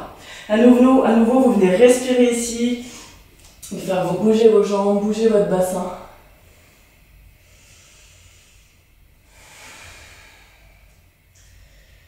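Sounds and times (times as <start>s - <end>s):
woman breathing slowly: 0.1s - 0.5s, 6.1s - 12.0s.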